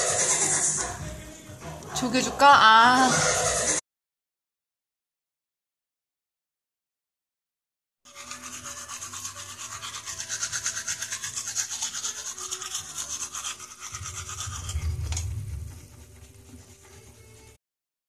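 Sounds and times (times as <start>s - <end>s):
toothbrush scrubbing teeth: 0.0s - 1.1s, 8.1s - 17.6s
low rumble: 13.9s - 16.4s.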